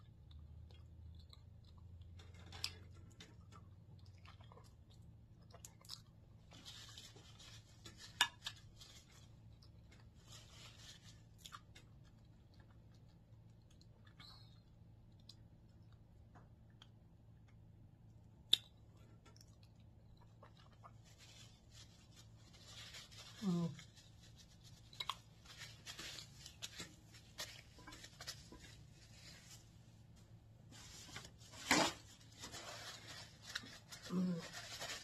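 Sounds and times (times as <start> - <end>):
low steady hum: 0.0 - 35.0
paper napkin rustling: 30.7 - 35.0.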